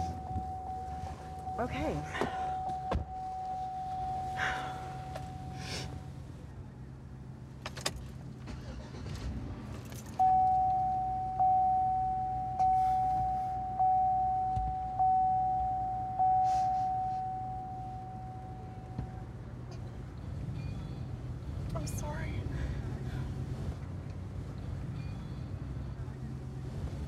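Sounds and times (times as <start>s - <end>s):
steady tone: 0.0s - 6.0s, 10.2s - 19.2s
dashboard warning chime: 0.0s - 6.1s, 10.1s - 19.4s.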